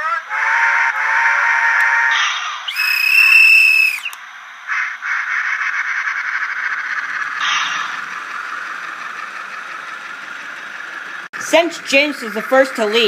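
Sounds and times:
two-tone model train whistle: 0:00.0 - 0:04.2
model train rattling on track: 0:02.1 - 0:13.0.

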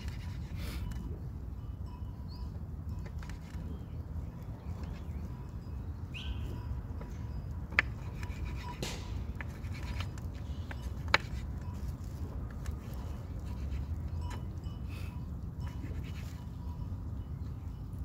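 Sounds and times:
bird chirping: 0:03.6 - 0:07.5.

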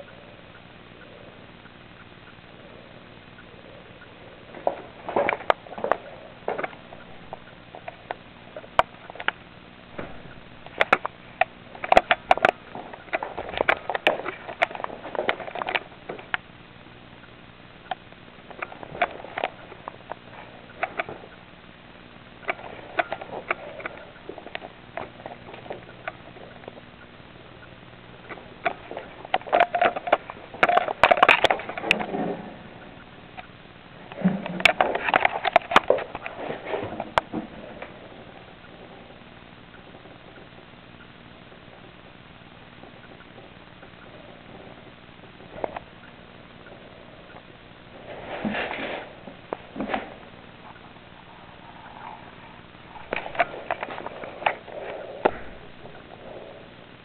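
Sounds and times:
gerbil scrabbling clicks and scratches: 0:10.2 - 0:16.4, 0:17.8 - 0:21.5, 0:22.4 - 0:33.5, 0:34.1 - 0:38.9, 0:48.2 - 0:56.2.

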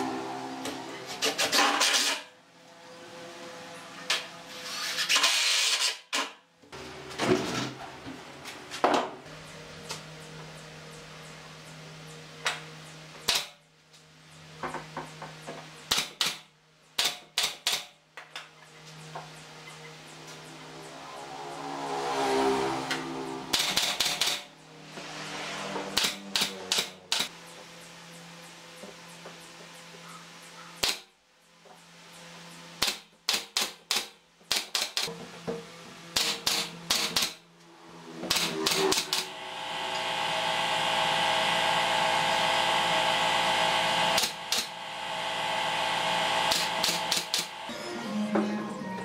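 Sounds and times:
nail gun shots: 0:13.3 - 0:13.6, 0:15.9 - 0:16.4, 0:17.0 - 0:17.9, 0:30.8 - 0:31.1, 0:32.8 - 0:35.1, 0:36.2 - 0:37.4.

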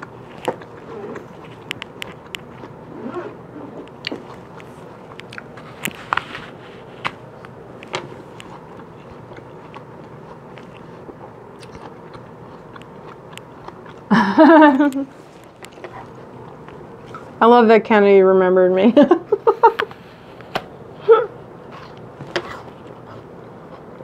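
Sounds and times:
apple crunching: 0:00.0 - 0:17.4
soft chewing: 0:00.0 - 0:17.4, 0:21.5 - 0:24.0.

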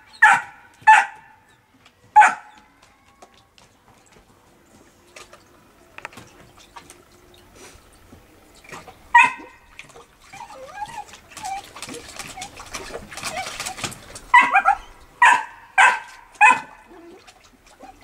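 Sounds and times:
dog yipping: 0:00.0 - 0:01.3, 0:02.2 - 0:02.6, 0:09.1 - 0:17.2, 0:17.8 - 0:18.0
puppy lapping water: 0:03.2 - 0:18.0
dog whimpering: 0:10.3 - 0:14.9.

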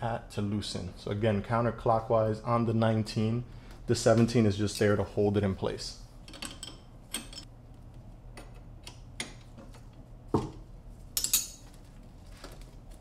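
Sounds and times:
metal wrenches clinking: 0:06.3 - 0:07.5, 0:11.2 - 0:11.7.

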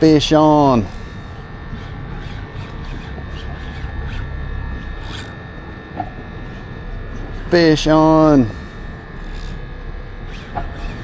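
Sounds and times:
boat engine idling: 0:00.0 - 0:11.0
wind: 0:00.0 - 0:11.0
fishing reel clicks: 0:00.2 - 0:05.4, 0:09.0 - 0:11.0.

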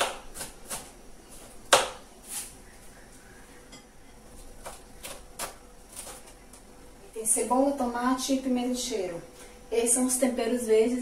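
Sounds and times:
knife chopping on cutting board: 0:01.7 - 0:02.0.

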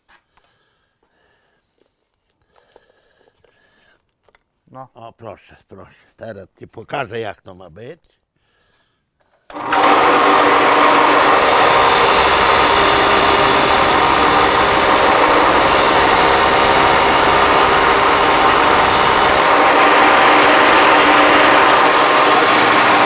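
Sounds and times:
angle grinder grinding metal: 0:09.5 - 0:23.0.

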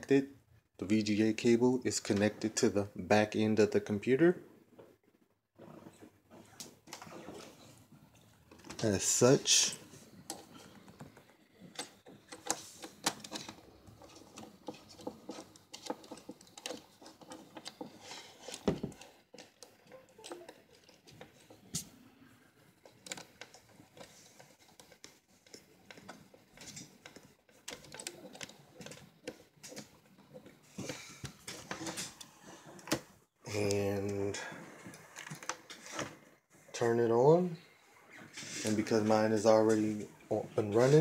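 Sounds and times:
hands rustling cables: 0:05.6 - 0:37.0.

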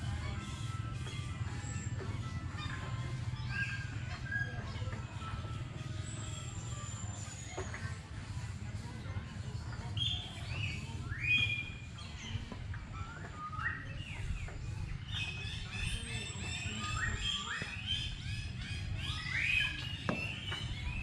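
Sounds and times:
small birds chirping: 0:09.8 - 0:21.0.

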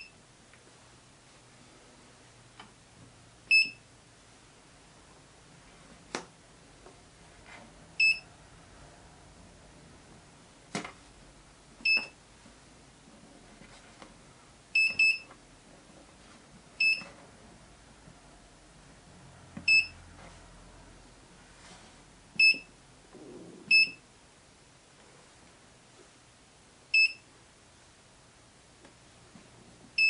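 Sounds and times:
short high keypad beeps: 0:03.5 - 0:03.8, 0:11.8 - 0:12.2, 0:14.8 - 0:15.3, 0:16.8 - 0:17.1, 0:19.7 - 0:19.9, 0:22.4 - 0:22.7, 0:23.7 - 0:24.0, 0:27.0 - 0:27.2.

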